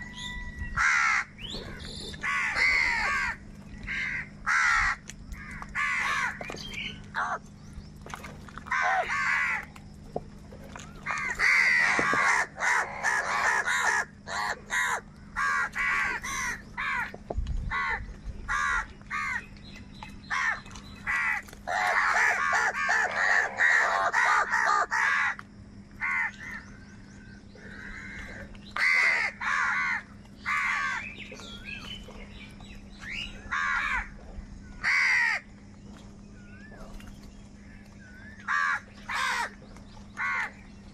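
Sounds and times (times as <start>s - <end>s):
crows cawing: 0.8s - 6.5s, 7.1s - 7.4s, 8.7s - 9.7s, 11.0s - 19.4s, 20.2s - 25.4s, 26.0s - 26.6s, 27.6s - 31.1s, 33.5s - 34.1s, 34.8s - 35.5s, 38.4s - 39.6s, 40.2s - 40.6s.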